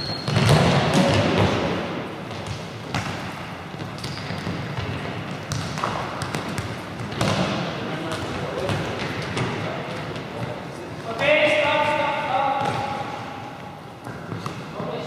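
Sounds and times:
echoing din of players' voices: 0.0 - 15.0
balls thudding off feet and floor: 0.2 - 11.3.

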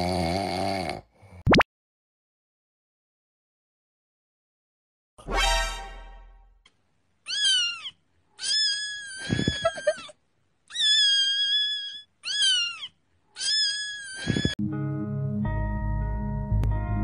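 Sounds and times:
cat meowing: 7.3 - 10.1, 10.7 - 14.6.

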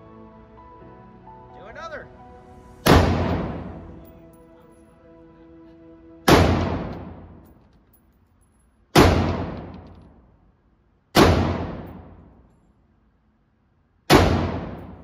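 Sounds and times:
rifle shots echoing indoors: 2.8 - 3.7, 6.3 - 7.6, 8.9 - 10.2, 11.1 - 12.5, 14.1 - 15.0.

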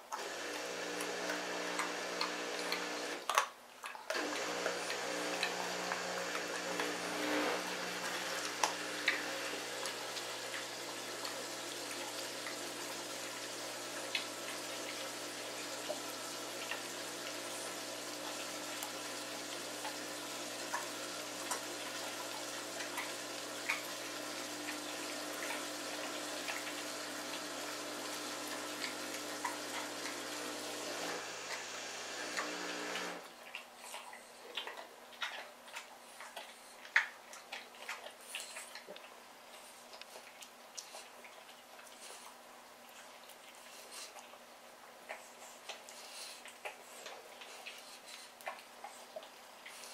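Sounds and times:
steady hiss with low hum: 0.0 - 49.9
dog crunching bones: 0.1 - 13.4.

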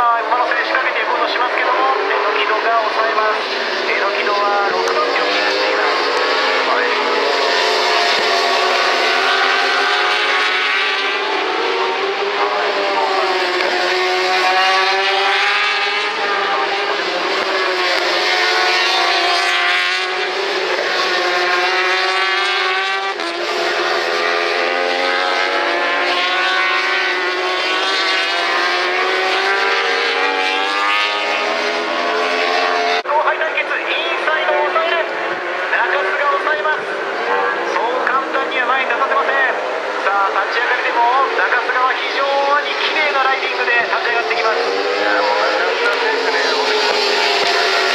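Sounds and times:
racing motorcycle engines passing: 0.0 - 47.9.

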